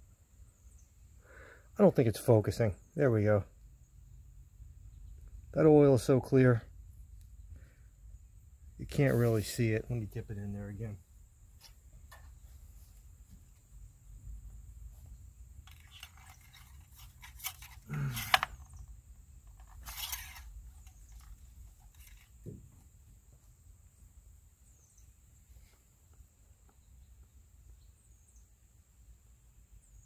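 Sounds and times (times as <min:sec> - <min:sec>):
dipstick metal clicks and scrapes: 0:15.6 - 0:18.8, 0:19.5 - 0:22.4
knock and rustle: 0:21.9 - 0:23.0.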